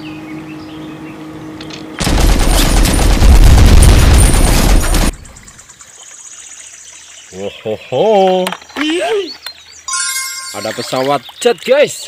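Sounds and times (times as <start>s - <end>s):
explosions: 2.0s - 5.2s
rapid gunfire: 2.0s - 5.2s.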